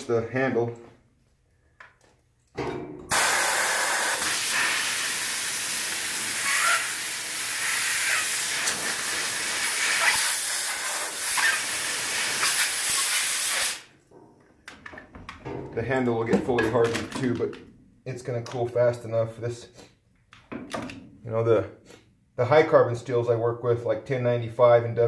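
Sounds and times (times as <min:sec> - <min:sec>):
compressed air hissing: 0:03.1 - 0:13.9.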